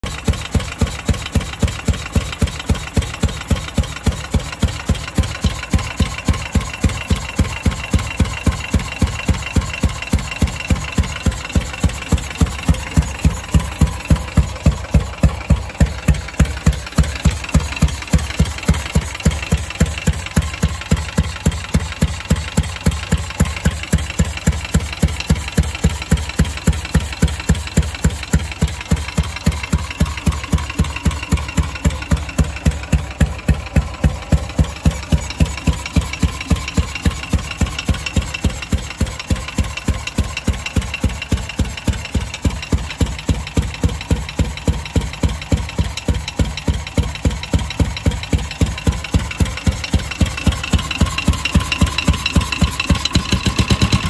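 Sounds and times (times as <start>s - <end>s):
motorcycle engine idling: 0.0s - 54.0s.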